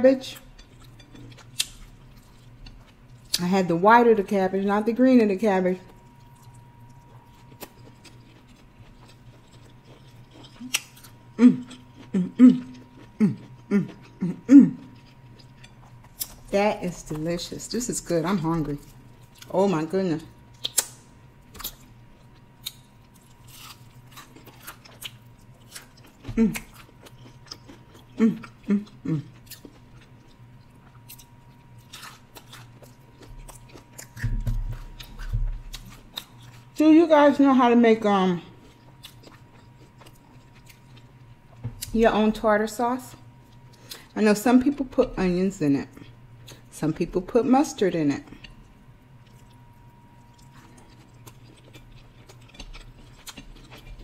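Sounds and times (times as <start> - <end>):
person chewing: 0.3 - 3.4, 5.9 - 17.3, 18.4 - 19.5, 20.5 - 36.8, 38.5 - 42.0, 48.3 - 54.0
closed-mouth hums: 10.6 - 15.4, 28.0 - 29.4.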